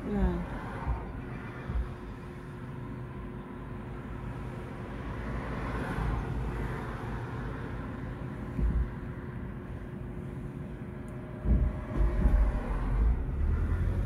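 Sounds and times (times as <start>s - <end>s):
truck driving past: 11.6s - 14.0s.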